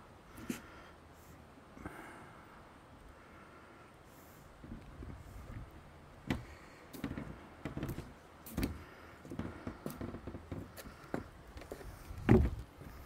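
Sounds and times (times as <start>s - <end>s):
footsteps on wooden deck: 4.6s - 13.0s.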